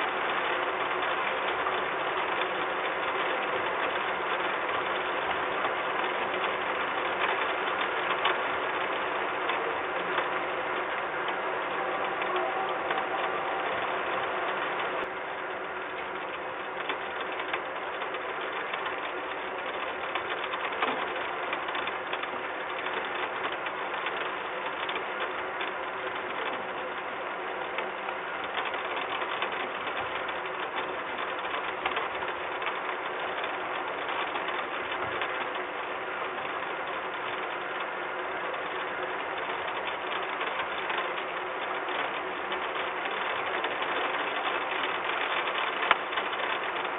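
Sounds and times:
faint steady hum: 0:00.0 - 0:46.9
rain pattering on metal: 0:00.0 - 0:46.9.

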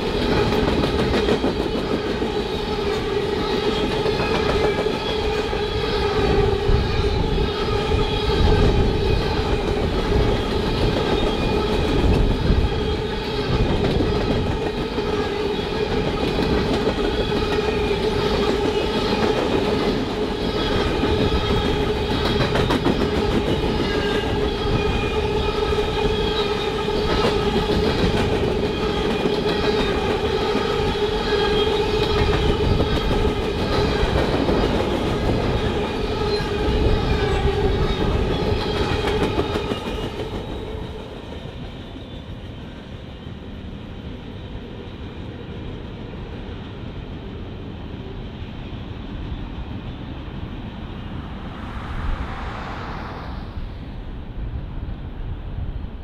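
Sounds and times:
freight train cars rumbling: 0:00.0 - 0:45.5
sustained whine: 0:50.4 - 0:55.1.

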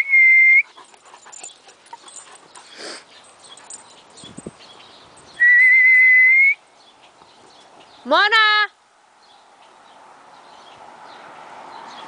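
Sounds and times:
person whistling for a dog: 0:00.0 - 0:00.7, 0:05.4 - 0:06.6
dogs playing: 0:00.6 - 0:05.3.

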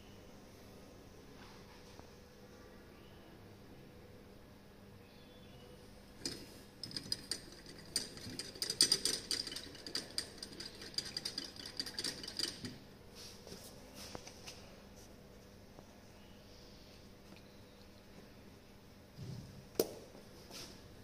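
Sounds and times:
laboratory glassware clinking: 0:06.2 - 0:12.8.

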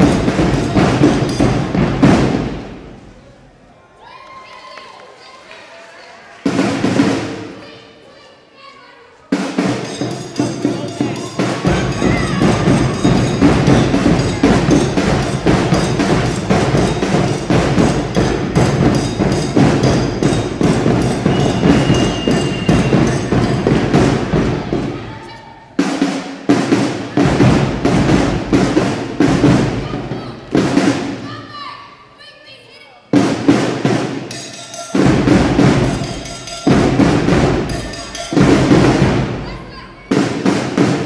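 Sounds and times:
drum-heavy dance music: 0:00.0 - 0:02.9, 0:09.4 - 0:25.2, 0:25.8 - 0:31.4, 0:33.1 - 0:41.0.

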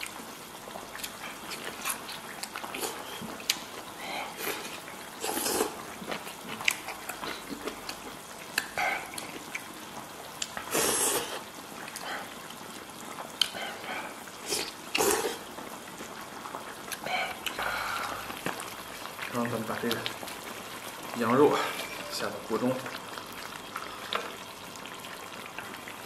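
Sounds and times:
man slurping and chewing: 0:00.9 - 0:03.5, 0:04.2 - 0:08.0, 0:10.4 - 0:12.1, 0:13.4 - 0:15.5.

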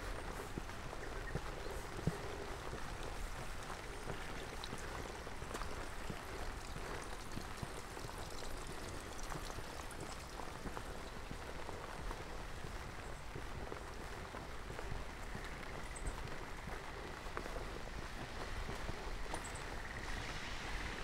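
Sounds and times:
rain falling: 0:00.0 - 0:21.0
water drips and taps: 0:03.0 - 0:11.4.

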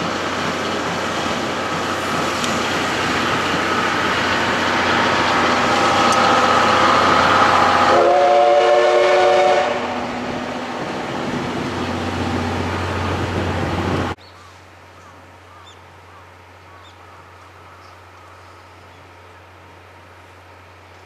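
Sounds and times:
coaches rolling on rails: 0:00.0 - 0:14.2
steam train running: 0:00.0 - 0:14.2
train whistle: 0:05.6 - 0:10.2.

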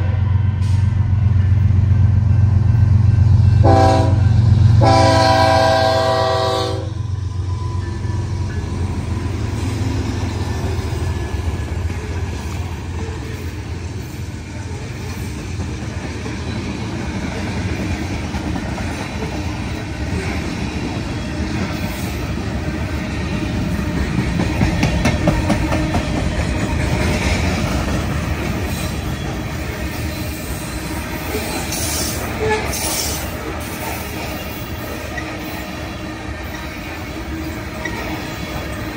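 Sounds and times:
diesel locomotive engine rumble: 0:00.0 - 0:38.9.

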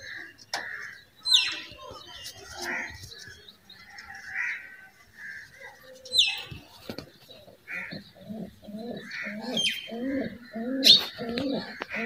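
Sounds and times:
pigeons cooing: 0:06.4 - 0:12.0.

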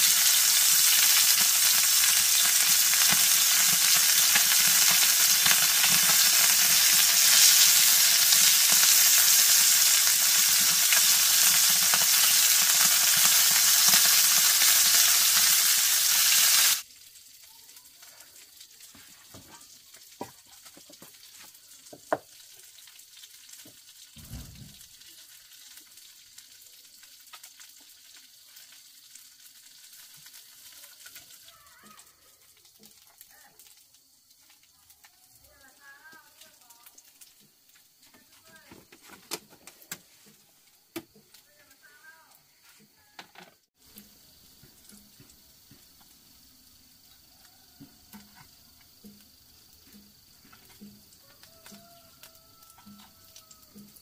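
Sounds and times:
fish sizzling in hot oil: 0:00.0 - 0:38.7, 0:39.3 - 0:54.0
low thump: 0:24.2 - 0:24.8.

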